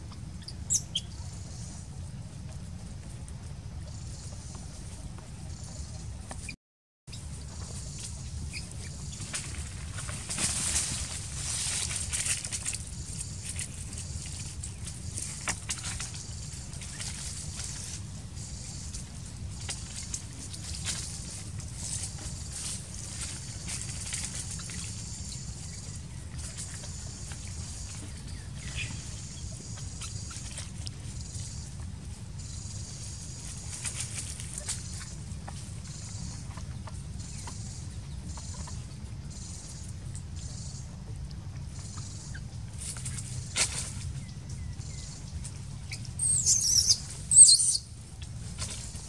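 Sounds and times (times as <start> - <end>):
infant monkey squealing: 46.2 - 47.8.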